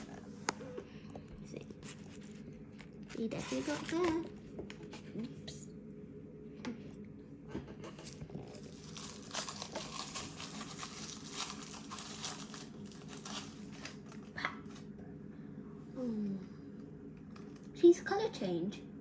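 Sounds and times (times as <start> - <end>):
plastic wrapping crackling: 1.5 - 4.4, 8.1 - 14.4.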